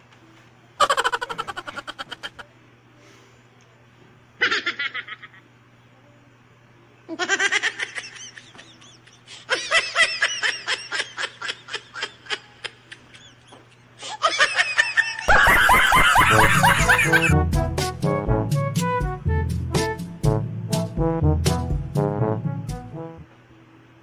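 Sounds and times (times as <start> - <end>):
loud laughing: 0.8 - 2.4, 4.4 - 5.4, 7.1 - 17.4
music: 16.1 - 23.7.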